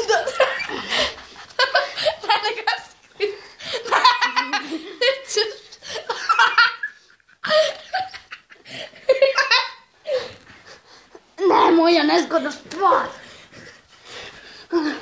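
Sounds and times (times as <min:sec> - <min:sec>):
people laughing hard: 0:00.0 - 0:10.5.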